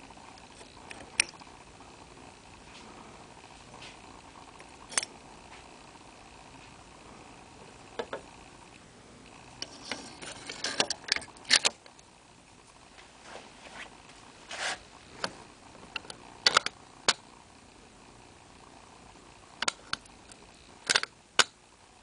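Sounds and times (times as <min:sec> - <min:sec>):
metal clicks and scrapes: 0:09.6 - 0:11.8, 0:20.9 - 0:21.1.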